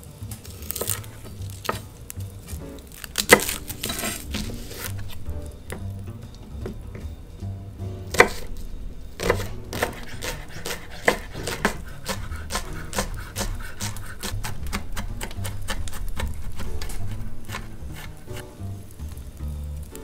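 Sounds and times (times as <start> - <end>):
background music: 0.0 - 20.0
knife chopping on wooden board: 2.6 - 6.0, 8.1 - 8.6, 9.2 - 18.5.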